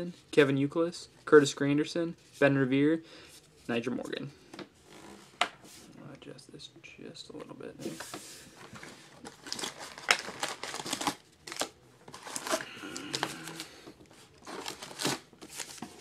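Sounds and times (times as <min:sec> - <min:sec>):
wrapped card packs crinkling: 0:08.0 - 0:16.0.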